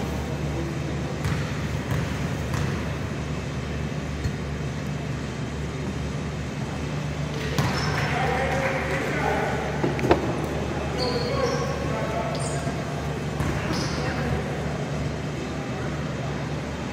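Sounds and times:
gymnasium low hum: 0:00.0 - 0:16.9
basketball bouncing on court: 0:01.2 - 0:03.1, 0:07.4 - 0:08.4, 0:13.3 - 0:14.1.

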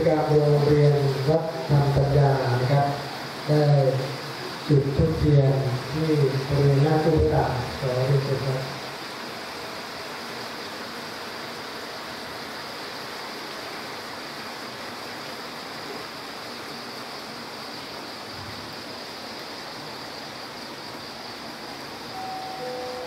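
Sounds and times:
steady hiss of hall: 0:00.0 - 0:23.0
faint musical tones: 0:22.1 - 0:23.0.

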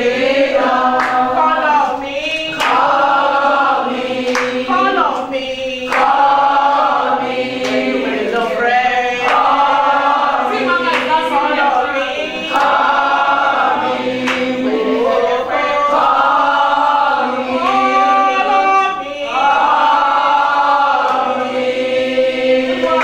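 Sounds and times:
women singing together: 0:00.0 - 0:23.0.

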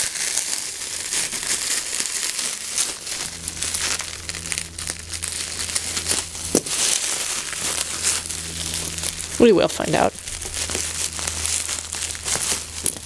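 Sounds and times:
bubble wrap crinkling: 0:00.0 - 0:13.0.

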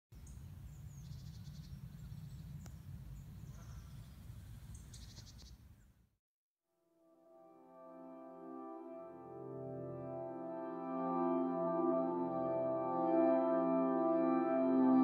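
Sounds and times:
small birds chirping: 0:00.2 - 0:06.0.

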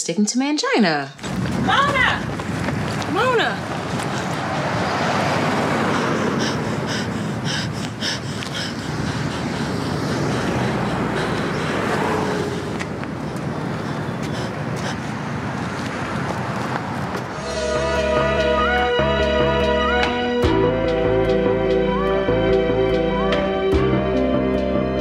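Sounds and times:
passing cars: 0:01.2 - 0:25.0
music: 0:17.4 - 0:25.0.

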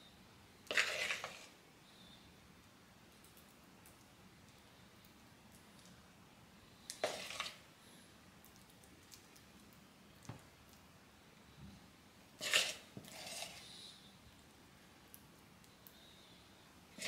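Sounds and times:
spoon scooping sandwich filling: 0:12.4 - 0:13.8.

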